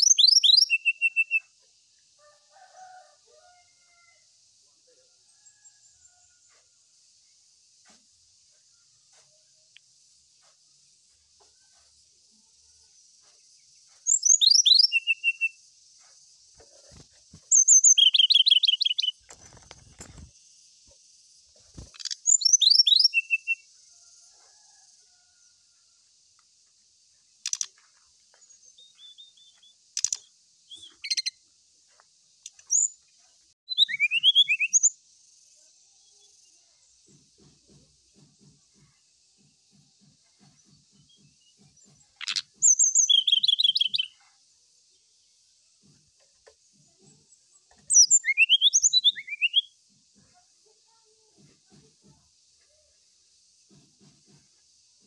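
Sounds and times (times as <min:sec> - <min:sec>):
sharp clicking bird notes: 0:30.0 - 0:30.3.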